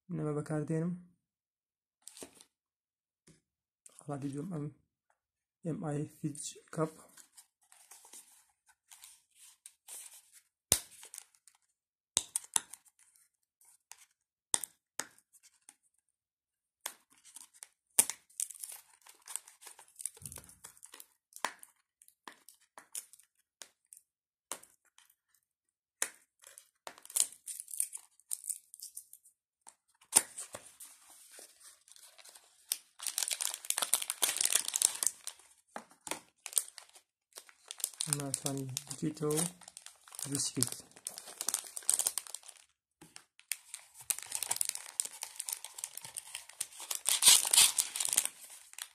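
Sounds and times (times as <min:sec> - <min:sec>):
plastic bag crinkling: 0:31.9 - 0:35.5, 0:36.4 - 0:42.7, 0:43.5 - 0:48.9.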